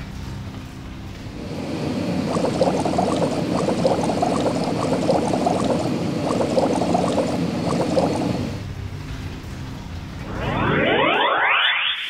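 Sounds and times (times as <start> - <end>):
cartoon liquid pops and splashes: 2.3 - 8.5.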